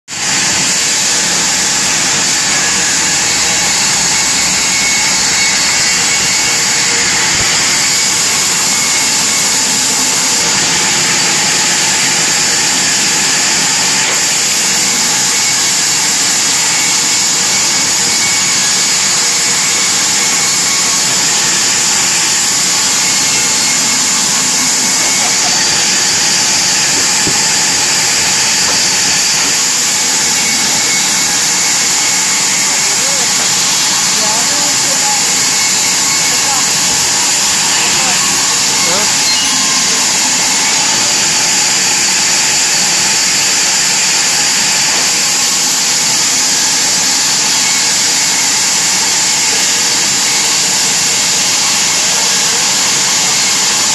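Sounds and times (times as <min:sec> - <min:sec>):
bandsaw cutting wood: 0:00.0 - 0:53.9.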